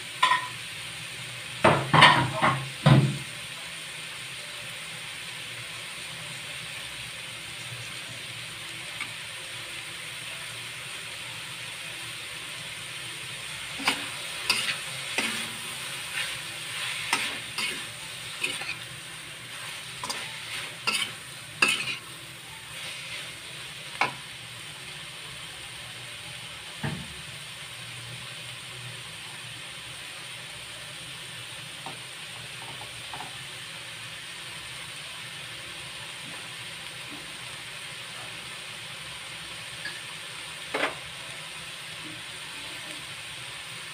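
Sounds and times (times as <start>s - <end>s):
food sizzling in a wok: 0.0s - 43.9s
metal spatula scraping a pan: 13.7s - 24.2s.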